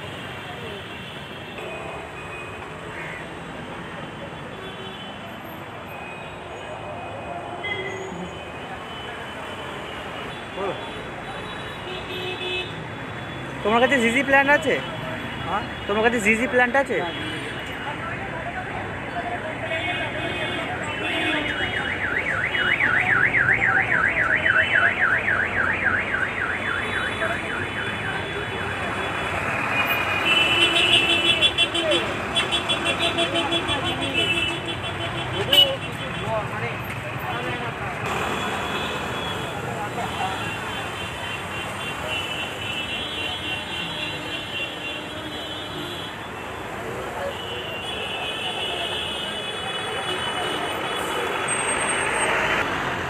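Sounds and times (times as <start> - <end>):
background traffic: 0.0 - 53.0
low street noise: 0.0 - 53.0
indistinct chatter: 30.9 - 52.3.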